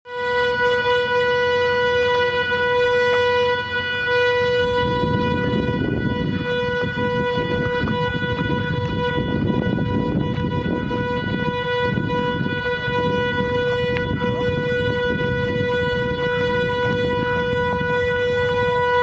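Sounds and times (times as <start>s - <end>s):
low rough noise: 0.3s - 19.0s.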